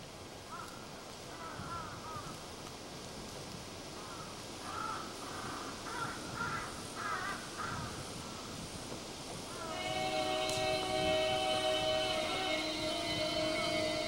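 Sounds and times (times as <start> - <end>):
crows cawing: 0.5 - 2.4, 4.0 - 8.0.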